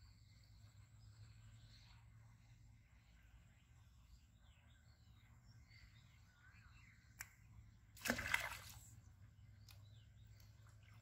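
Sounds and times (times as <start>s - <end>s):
pond water splash: 7.9s - 9.2s.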